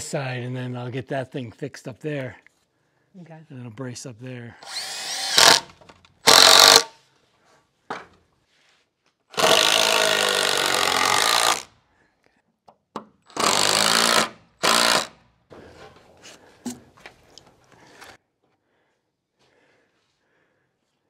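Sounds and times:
cordless power driver running: 0:06.3 - 0:06.9.

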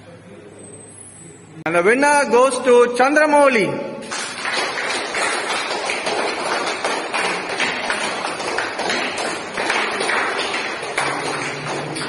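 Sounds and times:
people clapping: 0:04.0 - 0:12.0.

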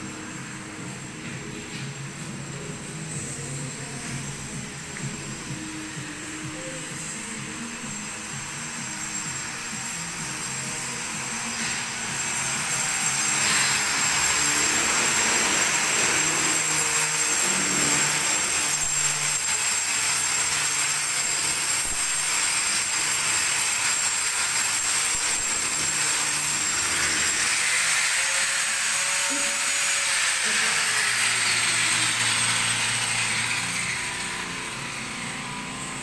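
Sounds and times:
thin high whine: 0:00.0 - 0:19.7.

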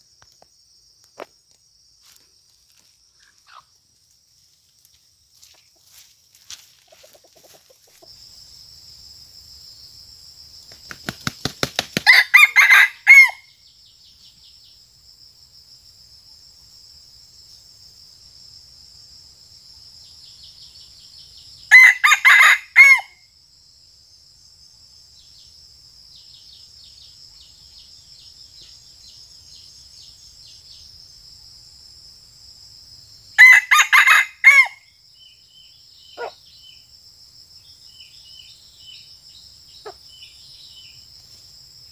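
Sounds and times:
high insect drone: 0:00.0 - 0:41.9
wing flaps: 0:10.7 - 0:12.1.

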